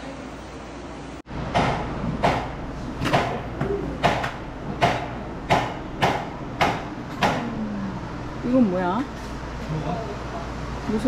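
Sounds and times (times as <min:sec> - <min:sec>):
sharp knocks: 0:01.5 - 0:07.5.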